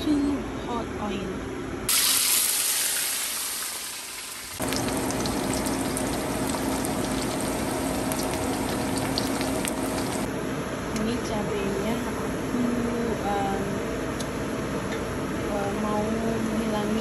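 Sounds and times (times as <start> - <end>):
loud hiss of hot oil: 1.9 - 4.6
fish sizzling and crackling: 1.9 - 10.3.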